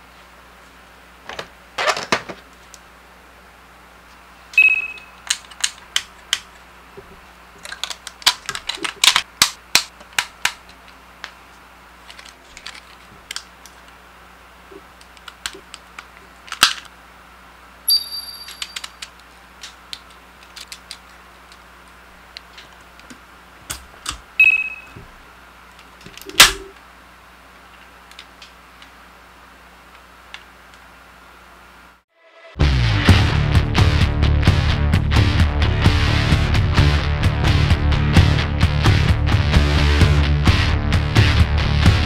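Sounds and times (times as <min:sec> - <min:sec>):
robot figure parts clicking: 0:07.6 - 0:10.6.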